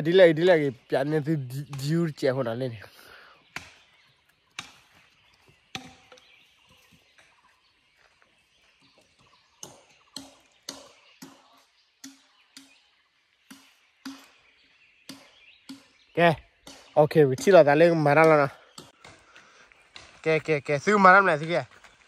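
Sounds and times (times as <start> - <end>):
sharp knocks with hollow ring: 4.5 - 4.9, 5.7 - 6.4, 9.6 - 12.8, 13.4 - 19.2.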